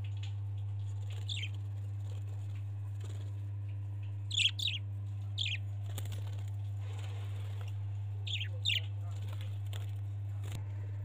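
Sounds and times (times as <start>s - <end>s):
low hum: 0.0s - 11.0s
budgerigars chirping: 1.2s - 1.5s, 4.3s - 4.8s, 5.4s - 5.6s, 8.2s - 8.9s.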